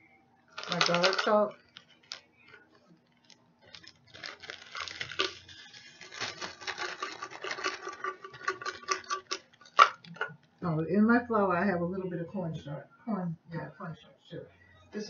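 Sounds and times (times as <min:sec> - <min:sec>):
spice shaker rattling: 0:00.6 - 0:01.8, 0:03.8 - 0:10.3.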